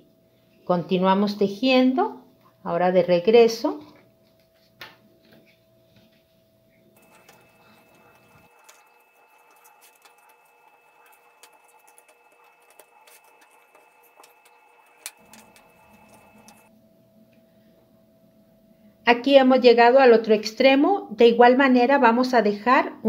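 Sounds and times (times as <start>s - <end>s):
paper crinkling and tapping: 7.0s - 16.7s.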